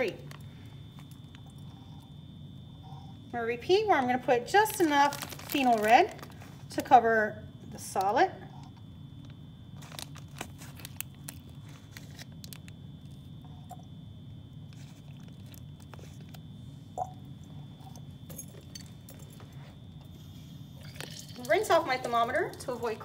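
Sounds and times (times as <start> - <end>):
plastic bag crinkling: 0.0 - 1.7, 4.5 - 6.9, 9.2 - 13.3, 14.7 - 16.4
faint high whine: 0.0 - 23.0
low room hum: 0.0 - 23.0.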